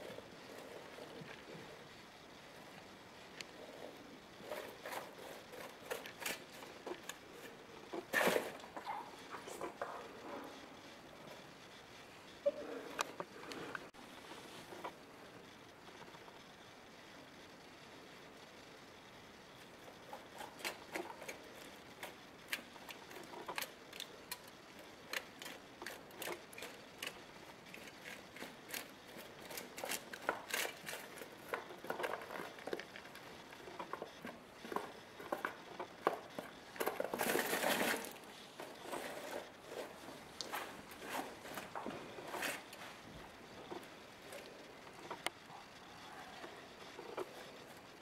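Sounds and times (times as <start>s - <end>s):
aluminium foil crinkling: 20.1s - 45.0s
straw rustling: 27.7s - 45.3s.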